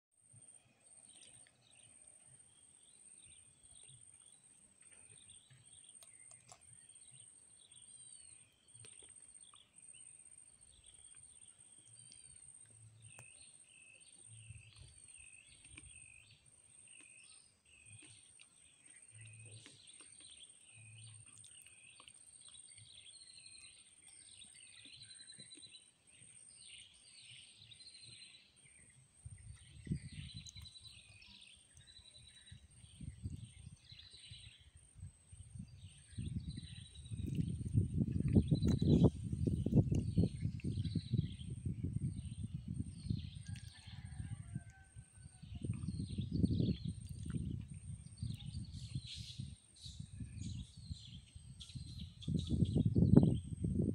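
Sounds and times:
birds chirping and calling: 0:35.8 - 0:42.5.

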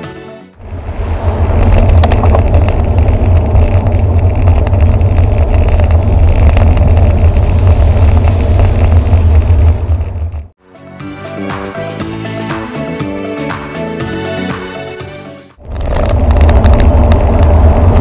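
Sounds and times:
wind rumble on microphone: 0:00.6 - 0:10.5, 0:15.6 - 0:18.0
passing road traffic: 0:00.6 - 0:10.6.

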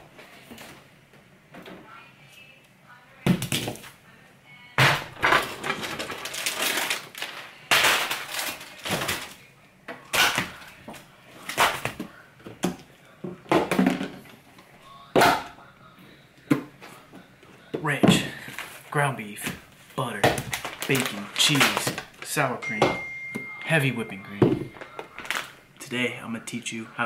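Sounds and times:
plastic bag rustling: 0:05.2 - 0:09.5, 0:19.7 - 0:22.6, 0:24.5 - 0:25.6.

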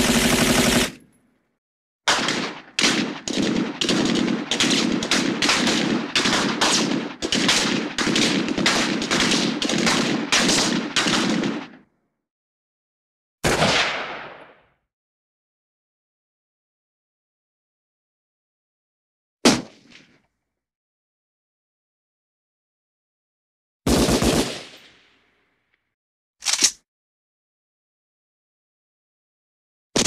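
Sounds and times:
machine gun firing bursts: 0:00.0 - 0:01.0, 0:02.1 - 0:11.7, 0:23.9 - 0:24.8.

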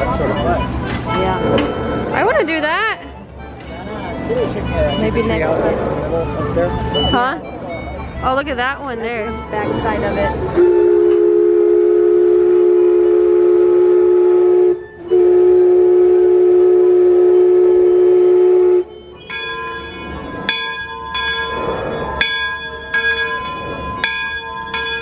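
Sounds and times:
steam whistle blasts: 0:10.5 - 0:19.3
bell ringing: 0:19.2 - 0:25.0.

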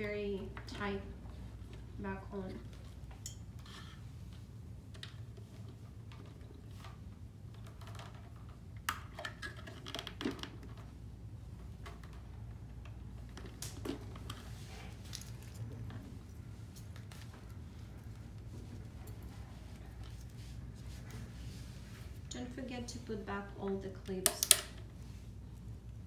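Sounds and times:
plastic clicks and handling: 0:24.2 - 0:24.9.

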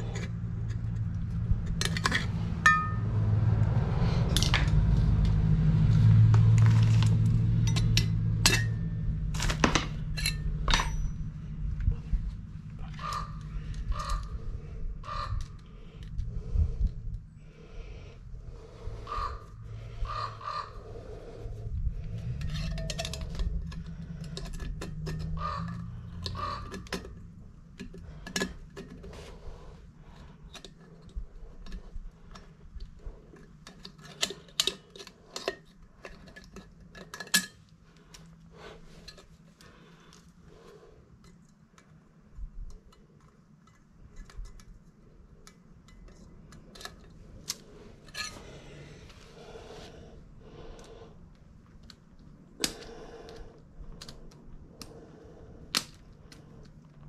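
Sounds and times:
metal tools clinking: 0:07.6 - 0:08.8, 0:09.4 - 0:11.3, 0:22.3 - 0:25.4, 0:33.6 - 0:37.7, 0:48.0 - 0:48.6.

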